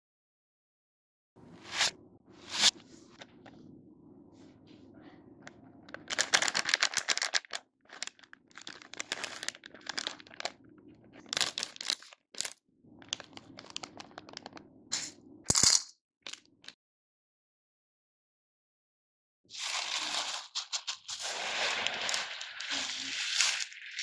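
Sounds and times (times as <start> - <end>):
plastic packets crinkling: 5.9 - 14.6, 19.6 - 24.0
sharp plastic crackle: 6.0 - 15.7, 19.6 - 24.0.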